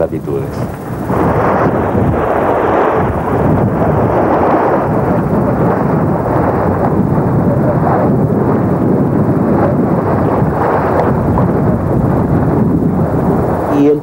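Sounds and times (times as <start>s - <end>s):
wind rumbling on microphone: 0.0s - 14.0s.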